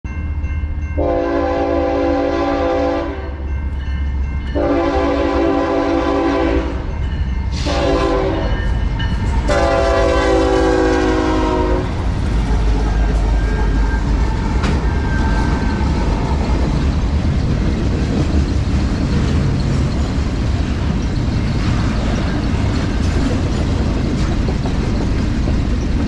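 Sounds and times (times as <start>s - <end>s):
locomotive rumble: 0.1s - 26.0s
locomotive air horn blasts: 1.0s - 3.4s, 4.6s - 6.9s, 7.5s - 8.7s, 9.4s - 12.0s.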